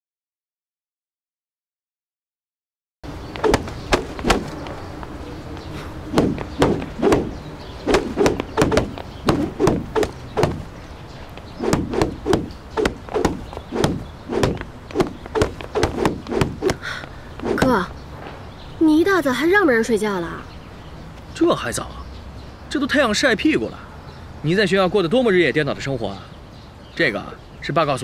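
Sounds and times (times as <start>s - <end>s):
stick slapping cloth sheet: 3.4s - 4.6s, 6.1s - 10.6s, 11.6s - 16.8s.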